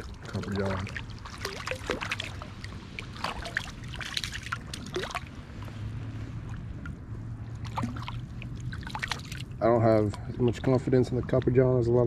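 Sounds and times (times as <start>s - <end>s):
fish splashing in water: 0.0s - 9.6s.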